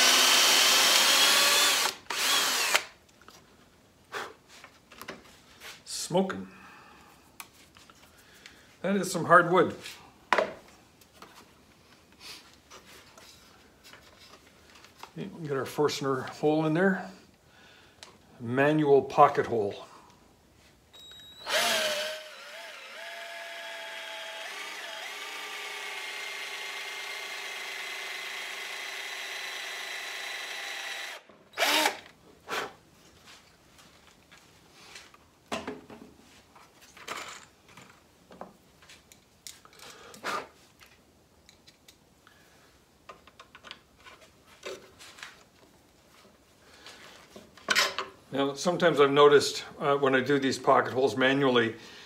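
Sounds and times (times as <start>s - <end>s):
power drill whining: 0.0s - 2.9s, 21.0s - 32.1s.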